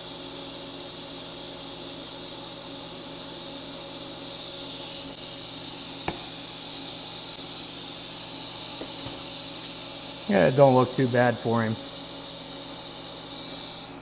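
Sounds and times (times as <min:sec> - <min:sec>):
welding hiss: 0:00.0 - 0:14.0.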